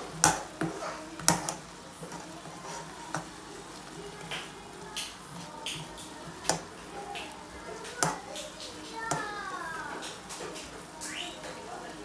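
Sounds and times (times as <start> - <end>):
spatula knocking and scraping pan: 0.0 - 3.4, 5.7 - 10.7
shrimp sizzling in a frying pan: 0.0 - 12.0.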